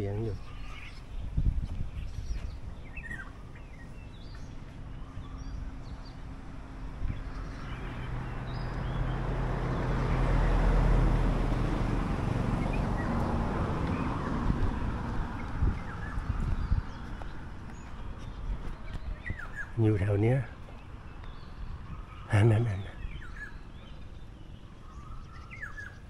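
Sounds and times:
bird chirps: 0:00.0 - 0:06.3, 0:15.3 - 0:26.0
vehicle passing by: 0:05.4 - 0:21.0.

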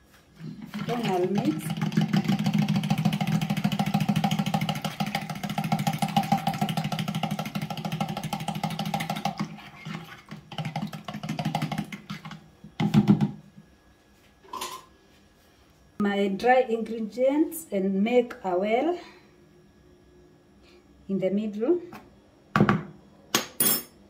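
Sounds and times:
fork beating eggs in plastic jug: 0:00.4 - 0:13.3.

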